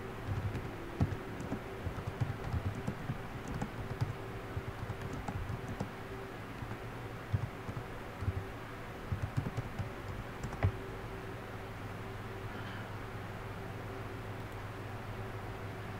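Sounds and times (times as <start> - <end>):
faint steady hum: 0.0 - 15.9
keyboard keystroke clicks: 0.3 - 5.9, 6.6 - 8.4, 9.1 - 10.8.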